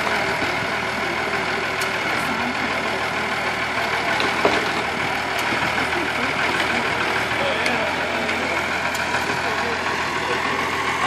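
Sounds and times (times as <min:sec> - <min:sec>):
tractor engine running: 0:00.0 - 0:11.0.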